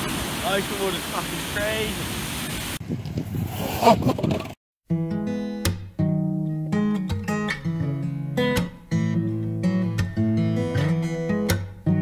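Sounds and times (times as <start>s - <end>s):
noisy outdoor sound: 0.0s - 12.0s
acoustic guitar strumming: 4.9s - 12.0s.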